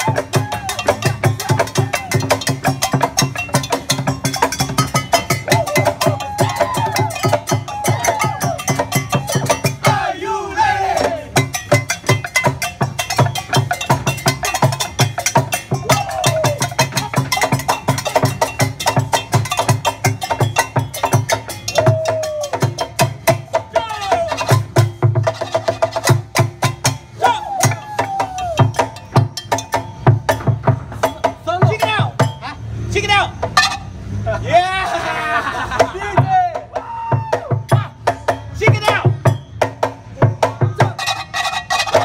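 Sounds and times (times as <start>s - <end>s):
plastic barrel drum beat: 0.0s - 10.2s, 11.0s - 32.5s, 35.7s - 42.0s.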